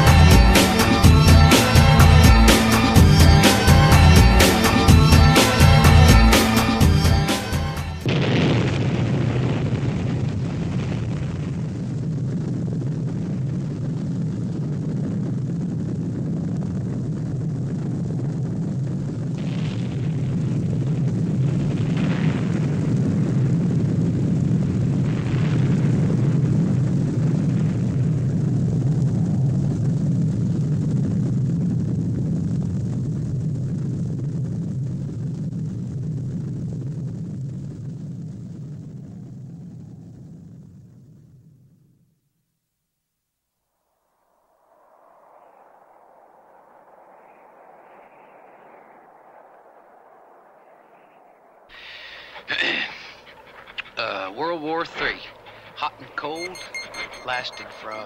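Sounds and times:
deep explosion rumble: 0.0 - 42.1.

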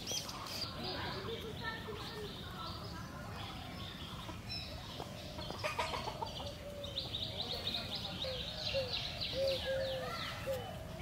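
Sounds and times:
small birds chirping: 0.0 - 11.0
chicken clucking: 5.0 - 6.7.

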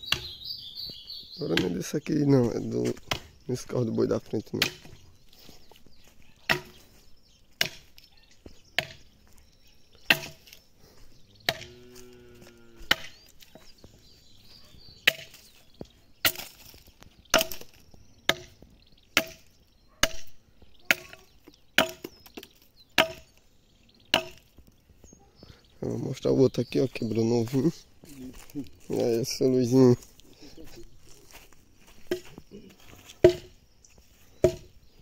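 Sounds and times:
axe chopping wood: 0.1 - 0.4, 1.5 - 1.8, 3.0 - 3.4, 4.6 - 5.0, 6.5 - 6.9, 7.6 - 8.0, 8.8 - 9.1, 10.0 - 10.6, 11.5 - 11.7, 12.8 - 13.6, 15.0 - 15.4, 16.2 - 20.3, 20.9 - 21.2, 21.8 - 23.4, 24.1 - 24.5, 32.0 - 32.4, 33.2 - 33.6, 34.4 - 34.8.

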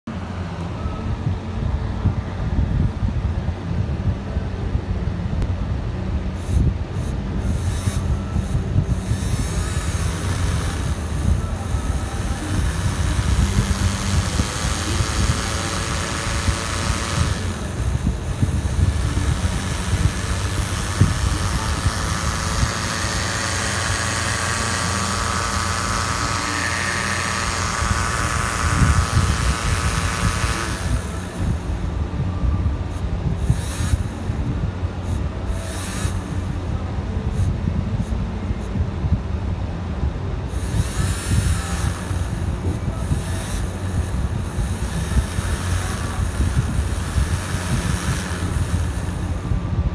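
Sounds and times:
small electric motor running: 6.4 - 32.0, 32.8 - 38.7, 40.4 - 49.7.

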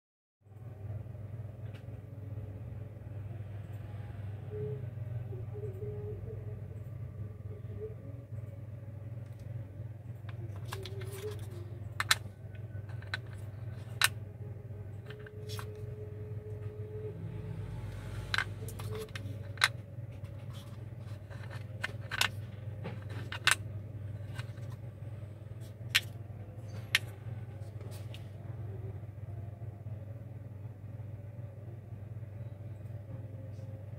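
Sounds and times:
steady low hum: 0.5 - 33.9
small metal inserts clicking: 10.5 - 12.3, 23.0 - 23.6.

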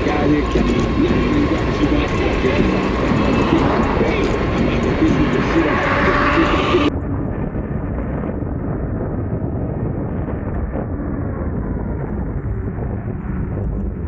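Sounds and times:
wind rumbling over microphone: 0.0 - 14.0.

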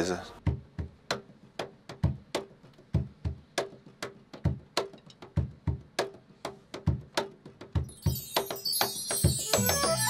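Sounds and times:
cajon bass thumps and slaps: 0.4 - 6.2.

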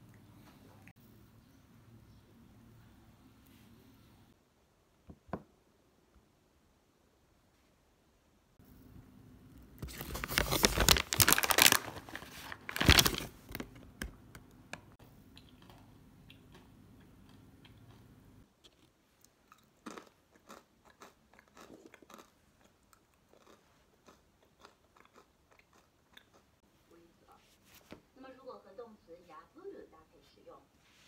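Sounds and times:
chips crunching: 9.8 - 13.8, 19.5 - 26.4
plastic bag rustling: 9.8 - 13.8.

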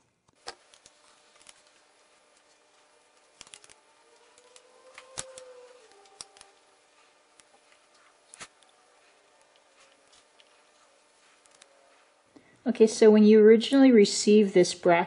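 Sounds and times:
small metal parts clicking: 3.4 - 3.8.

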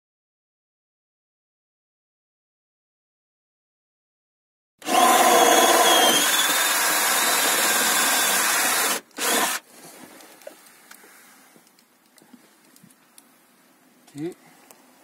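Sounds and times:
power drill running: 4.8 - 9.6
faint handling clicks: 10.2 - 13.3.

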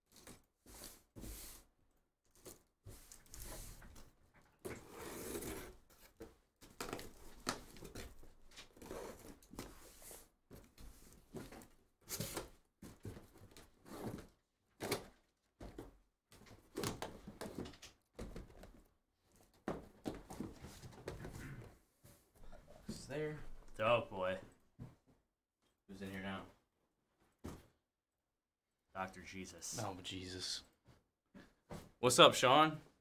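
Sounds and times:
cardboard rustling and scraping: 4.7 - 15.0.

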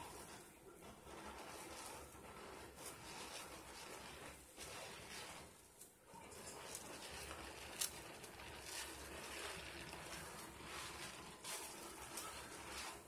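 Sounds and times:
hands squishing soap lather: 0.0 - 13.0.

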